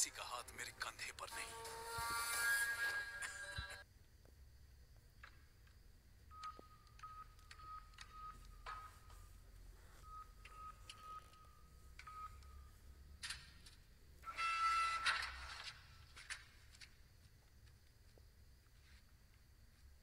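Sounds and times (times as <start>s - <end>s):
keypad beeps: 6.3s - 9.2s, 10.0s - 12.7s.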